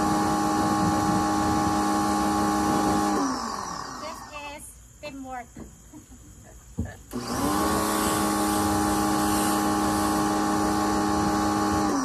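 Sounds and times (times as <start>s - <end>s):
pressure washer motor hum: 0.0s - 4.3s, 7.1s - 12.0s
water spray hissing: 7.4s - 11.6s.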